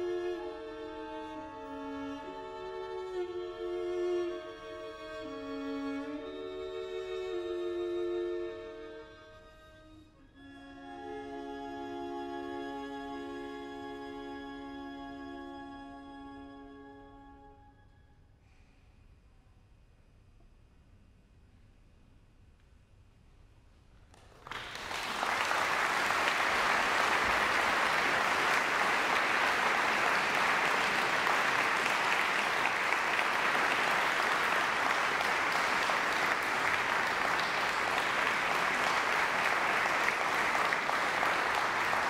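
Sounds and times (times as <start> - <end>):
audience applauding: 24.2 - 42.0.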